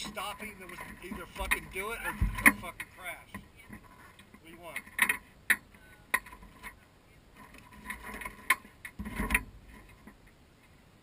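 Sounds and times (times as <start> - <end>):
handling noise on microphone: 0.0 - 10.8
dull thud: 1.2 - 2.8.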